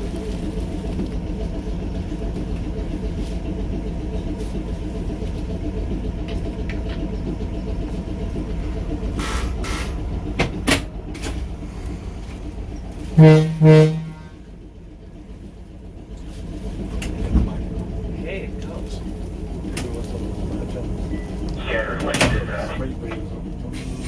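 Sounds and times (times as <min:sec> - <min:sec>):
train running rumble: 0:00.0 - 0:24.0
train horn blasts: 0:13.0 - 0:14.6.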